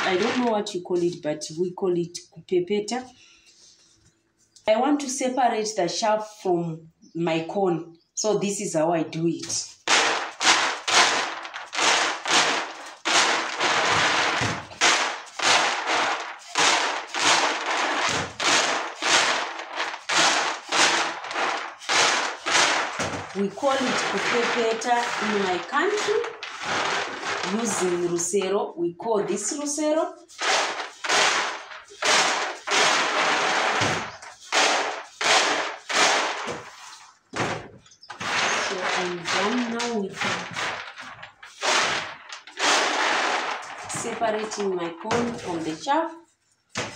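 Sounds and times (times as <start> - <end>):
maize rattling in woven basket: 0.0 - 0.7, 9.7 - 28.5, 30.3 - 37.0, 38.1 - 45.8.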